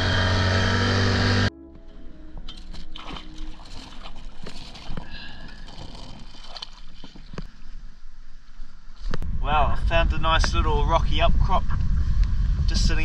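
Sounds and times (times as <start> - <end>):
outboard motor running: 0.0 - 1.5, 3.0 - 7.5
water slapping against boat: 2.5 - 7.5.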